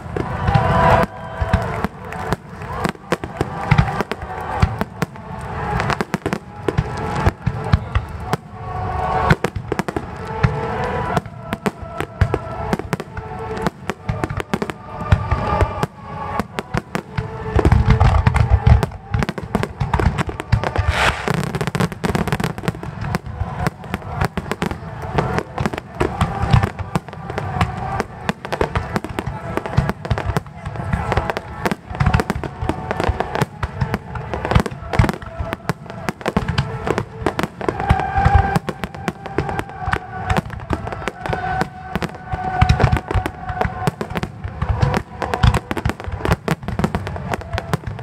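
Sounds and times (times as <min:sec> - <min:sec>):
fireworks bursting and crackling: 0:00.0 - 0:48.0
heavy fireworks booms: 0:00.0 - 0:48.0
music: 0:00.0 - 0:48.0.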